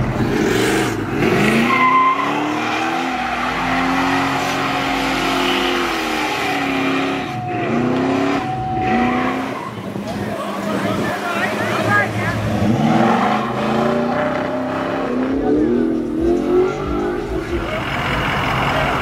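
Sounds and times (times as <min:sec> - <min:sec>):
car engine revving: 0:00.0 - 0:19.0
tyres squealing: 0:01.4 - 0:15.4.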